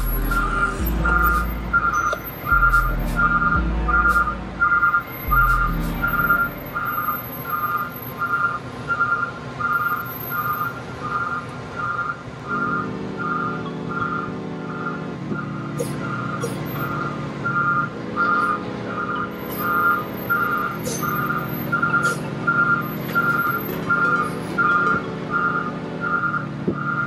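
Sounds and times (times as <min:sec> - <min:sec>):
background music: 0:00.0 - 0:07.2
vehicle backup alarm beeping: 0:00.0 - 0:27.0.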